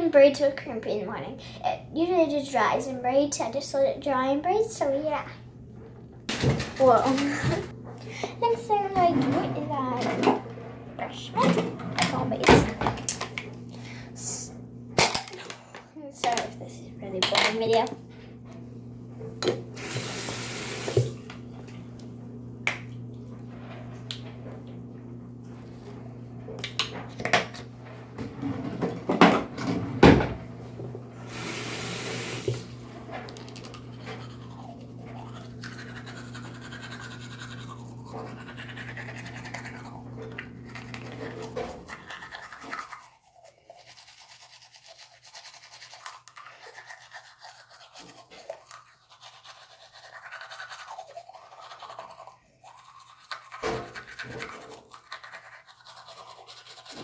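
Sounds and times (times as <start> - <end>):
steady low hum: 0.0 - 42.1
toothbrush scrubbing teeth: 33.3 - 57.0.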